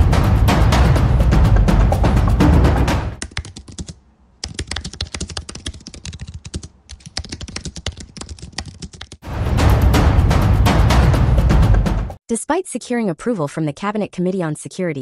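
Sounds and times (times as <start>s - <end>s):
music with heavy low drum: 0.0s - 3.2s, 9.2s - 12.2s
typing on a computer keyboard: 3.2s - 9.2s.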